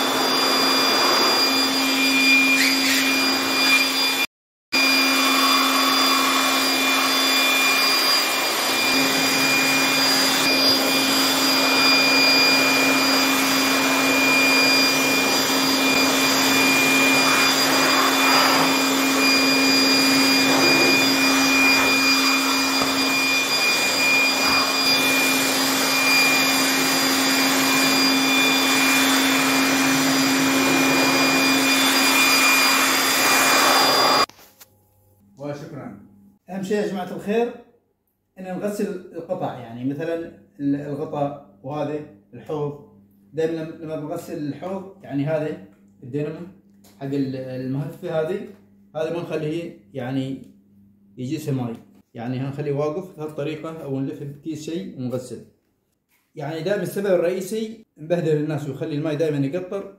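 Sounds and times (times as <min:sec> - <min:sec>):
electric blower running: 0:00.0 - 0:34.4.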